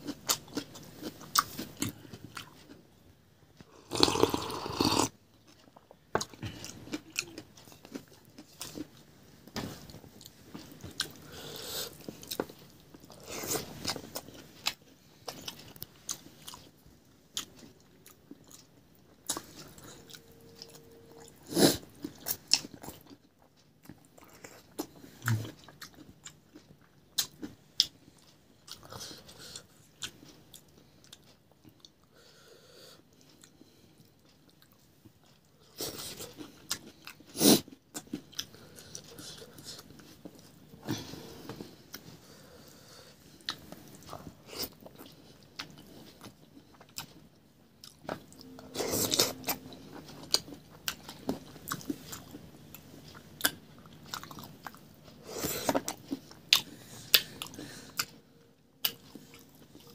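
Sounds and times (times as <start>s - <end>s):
person chewing and crunching food: 0.0s - 2.9s, 3.6s - 59.9s.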